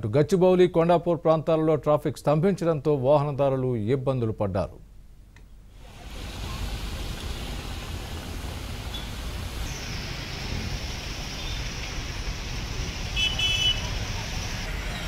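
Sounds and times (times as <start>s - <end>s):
heavy rain hissing: 5.7s - 15.0s
traffic on a jammed street: 5.8s - 15.0s.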